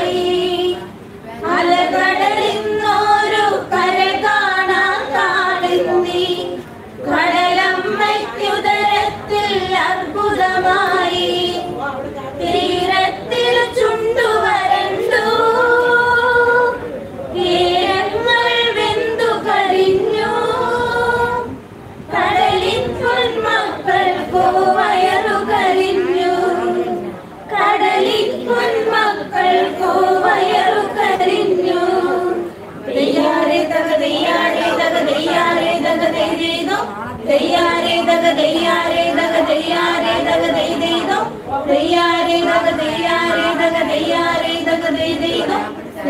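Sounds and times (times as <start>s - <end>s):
women singing unaccompanied: 0.0s - 46.0s.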